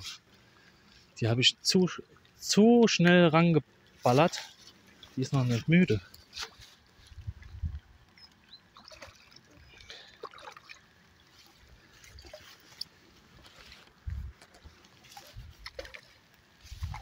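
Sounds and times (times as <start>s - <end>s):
fish splashing in water: 8.6s - 12.8s, 14.4s - 17.0s.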